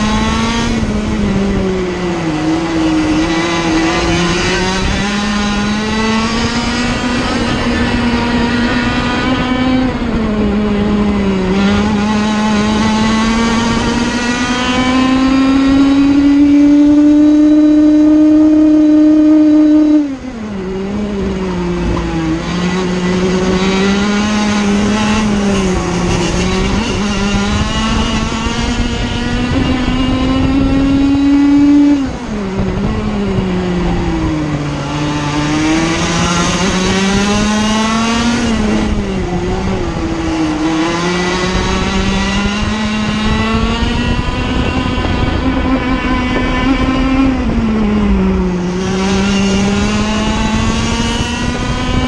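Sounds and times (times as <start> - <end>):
kart engine revving: 0.0 - 52.0.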